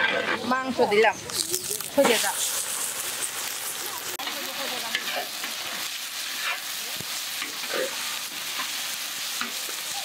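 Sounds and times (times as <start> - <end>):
meat sizzling in a wok: 0.2 - 10.0
metal spatula scraping pan: 4.8 - 6.8.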